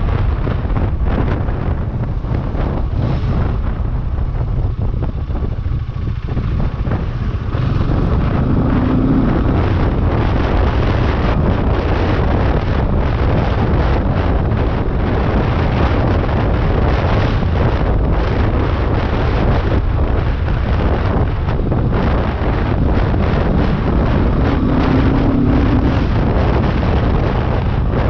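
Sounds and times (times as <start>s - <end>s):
motorcycle engine running: 0.0s - 28.0s
wind rushing over microphone: 0.0s - 28.0s.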